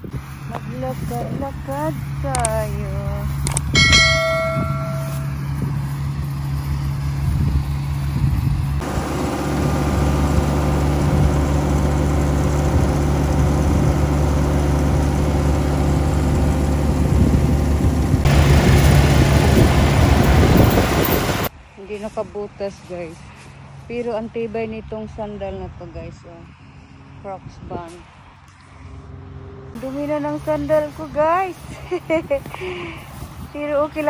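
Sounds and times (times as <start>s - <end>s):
combine harvester engine humming: 0.0s - 21.5s
short pitched chime: 3.8s - 5.6s.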